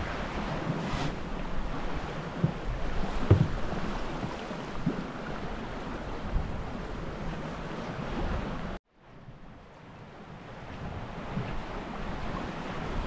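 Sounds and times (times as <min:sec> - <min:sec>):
water rushing along boat hull: 0:00.0 - 0:13.0
wind buffeting microphone: 0:00.0 - 0:13.0
dull thumps: 0:02.4 - 0:05.0.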